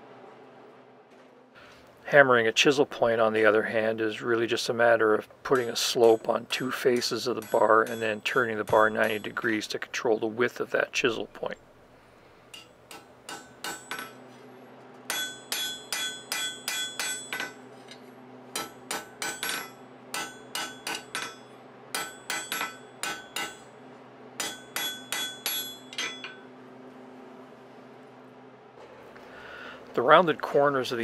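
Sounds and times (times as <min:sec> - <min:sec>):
hammer striking steel on anvil: 0:05.5 - 0:09.7, 0:12.5 - 0:14.3, 0:15.1 - 0:23.8, 0:24.4 - 0:26.5.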